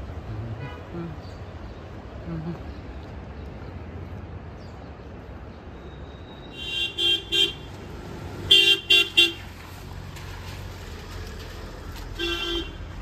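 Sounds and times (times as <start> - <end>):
vehicle horn short toots: 12.2 - 12.8.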